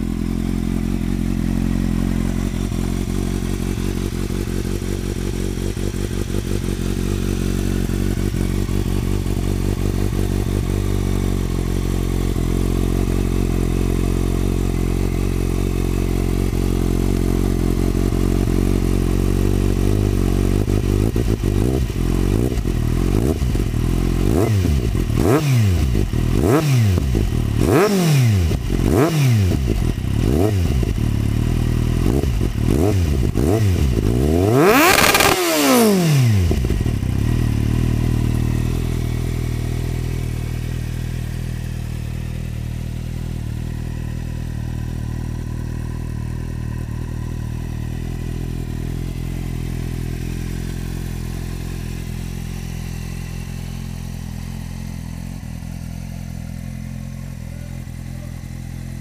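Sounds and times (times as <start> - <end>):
motorcycle engine idling: 0.0 - 59.0
motorcycle engine revving: 0.0 - 59.0.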